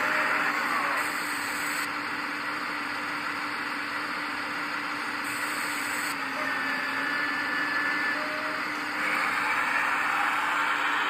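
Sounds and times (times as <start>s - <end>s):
toy excavator hydraulic pump hum: 5.1s - 11.0s.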